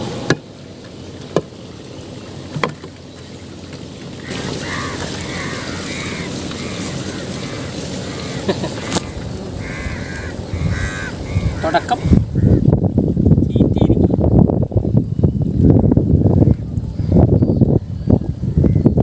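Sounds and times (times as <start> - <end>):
crows cawing: 4.2 - 12.7.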